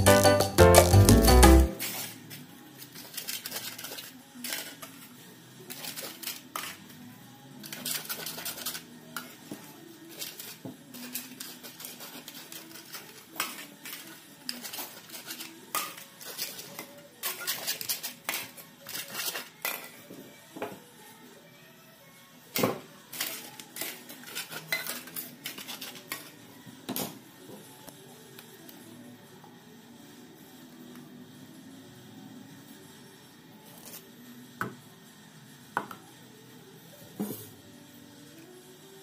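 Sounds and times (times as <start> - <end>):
foil cups clinking and crinkling: 2.9 - 4.9.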